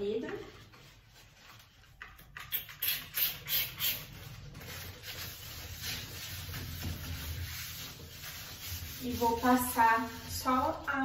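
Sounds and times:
spray bottle spritzing: 2.5 - 4.1
paper towel rubbing glass: 4.1 - 11.0.

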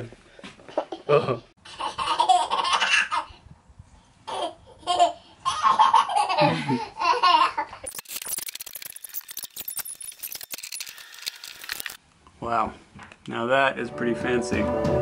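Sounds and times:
laughter: 0.8 - 1.5, 5.5 - 7.8.

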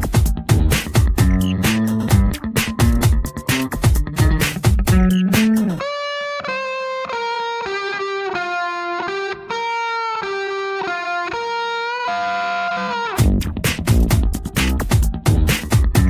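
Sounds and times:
full band with drums: 0.0 - 5.6
electric guitar melody: 0.0 - 16.0.

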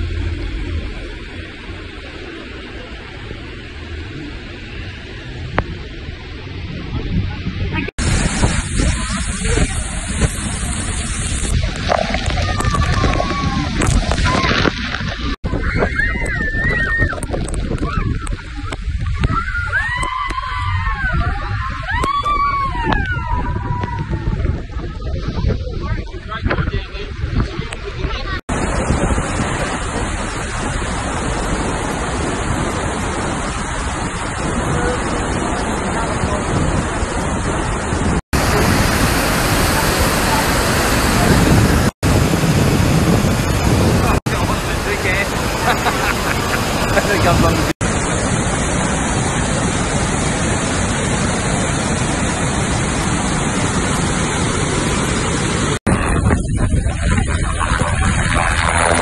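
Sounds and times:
wind buffeting microphone: 0.0 - 59.0
waterfall rushing: 7.5 - 15.4, 28.5 - 59.0
helicopter running: 39.2 - 59.0.

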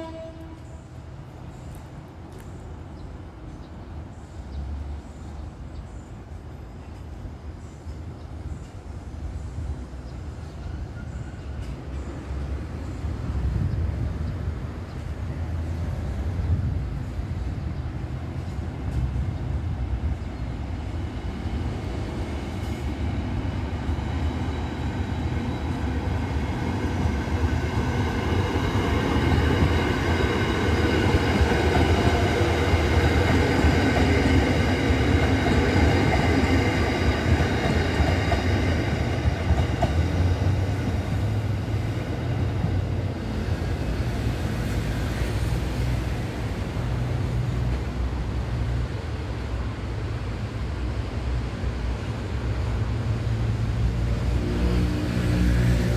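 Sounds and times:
train wheels rumbling on rail: 0.0 - 55.9
electric train whine: 18.1 - 55.9.

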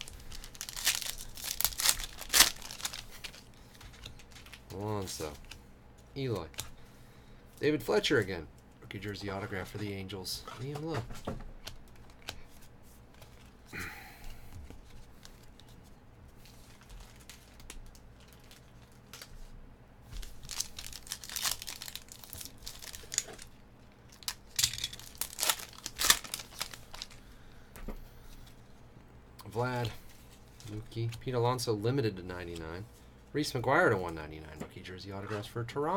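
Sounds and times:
foil wrapper tearing and crinkling: 0.0 - 5.6, 16.5 - 19.3, 20.2 - 27.2.

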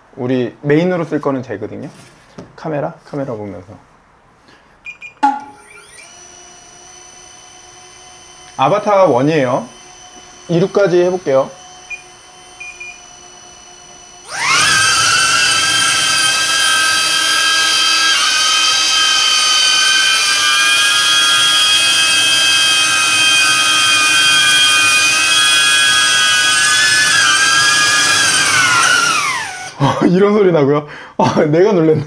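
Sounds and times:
drone propellers whining: 14.1 - 29.8.

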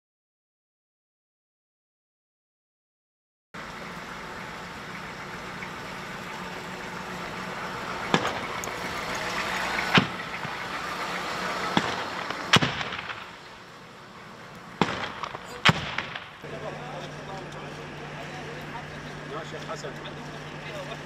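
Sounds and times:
diesel engine running: 3.6 - 21.0
sharp gunshots: 11.7 - 13.5, 14.7 - 16.4.

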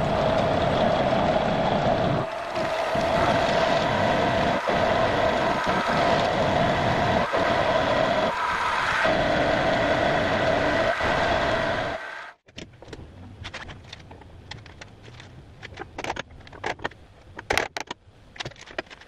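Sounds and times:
milling machine whine: 0.0 - 12.4.

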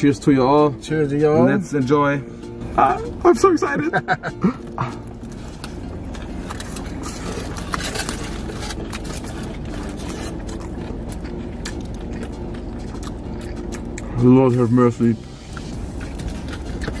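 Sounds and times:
low hum in car cabin: 1.6 - 17.0
chewing sounds: 4.6 - 14.7, 15.4 - 17.0
foil wrappers crinkling: 5.2 - 12.0.

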